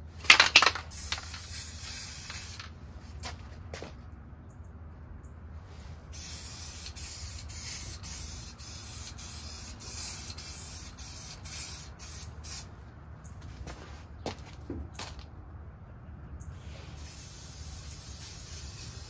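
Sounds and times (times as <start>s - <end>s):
aerosol spray can hissing: 0.9s - 2.7s, 6.2s - 12.7s, 17.0s - 19.0s.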